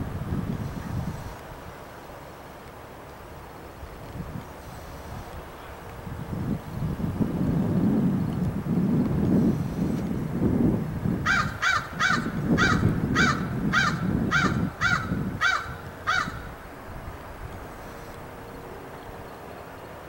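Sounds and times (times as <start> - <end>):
low rumbling noise: 0.0 - 20.0
crow cawing: 11.3 - 16.5.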